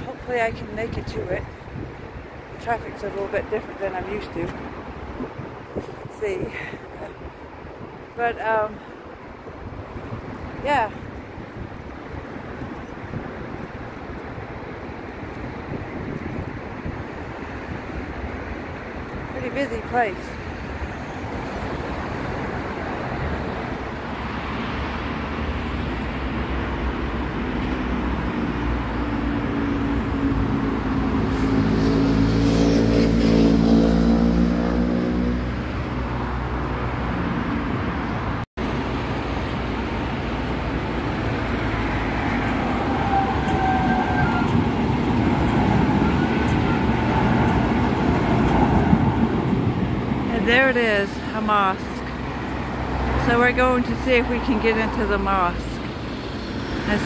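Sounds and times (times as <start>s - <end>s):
tram passing: 0.0s - 57.0s
cars rushing past: 14.0s - 57.0s.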